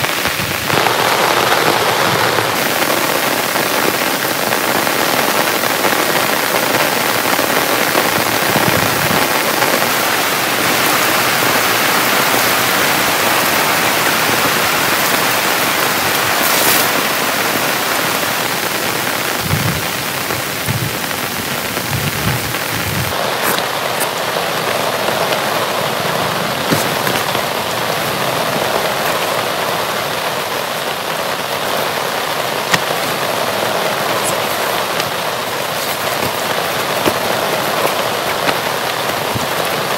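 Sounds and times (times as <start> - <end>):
heavy rain: 0.0 - 39.9
low thuds: 19.3 - 23.2.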